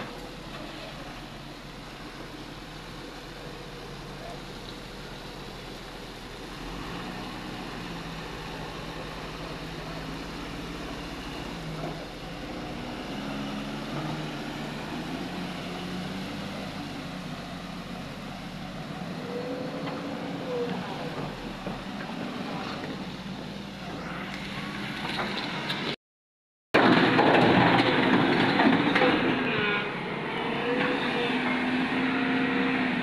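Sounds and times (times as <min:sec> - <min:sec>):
diesel truck engine driving off: 0:00.0 - 0:26.0.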